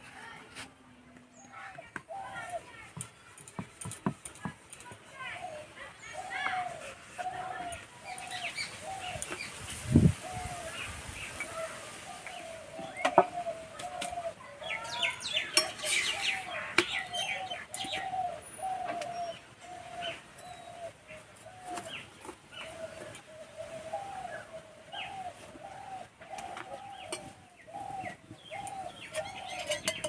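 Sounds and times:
birds chirping: 0:01.2 - 0:30.0.

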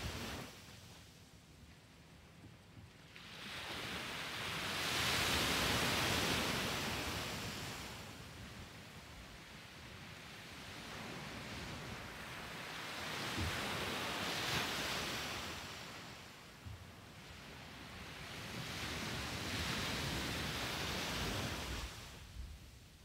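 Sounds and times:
waves breaking on a beach: 0:00.0 - 0:23.0.

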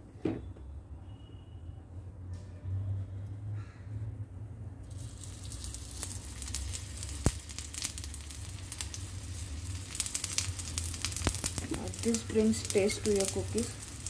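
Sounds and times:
ghee sizzling on a hot pan: 0:04.8 - 0:14.0.

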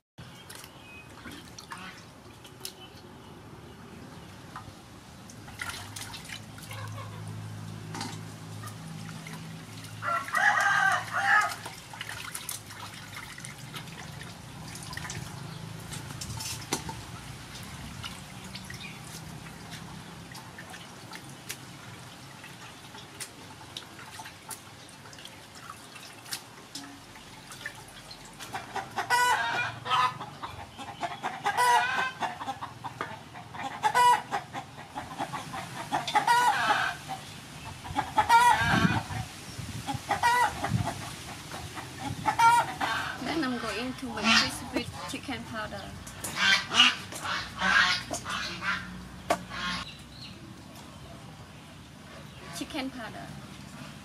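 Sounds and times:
water splashing in metal basin: 0:00.4 - 0:03.1, 0:04.5 - 0:29.8
chickens clucking: 0:06.7 - 0:08.9, 0:28.4 - 0:51.0
rooster crowing: 0:10.0 - 0:11.6.

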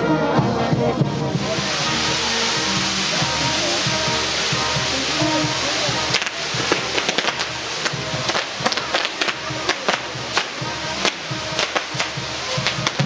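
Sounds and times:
band playing: 0:00.0 - 0:13.0
firework bangs and crackles: 0:01.0 - 0:13.0
steady firework hiss: 0:01.0 - 0:13.0.

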